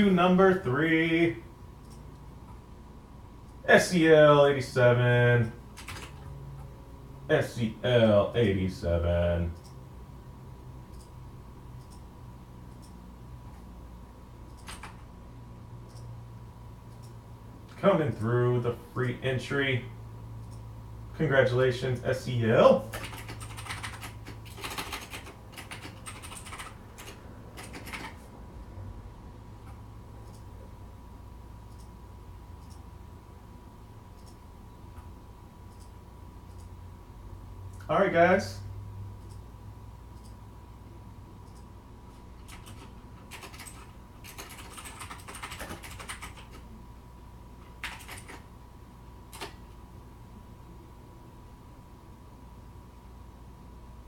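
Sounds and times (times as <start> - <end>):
faint steady hum: 0.0 - 54.0
typing on computer keyboard: 5.8 - 6.3, 14.5 - 15.0, 22.8 - 28.2, 42.4 - 46.6, 47.6 - 48.5, 49.3 - 49.7.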